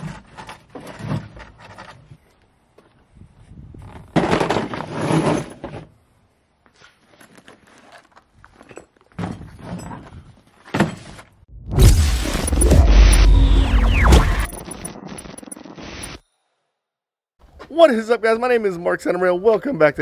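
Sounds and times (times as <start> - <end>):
deep whoosh and boom effect: 11.5 - 14.8.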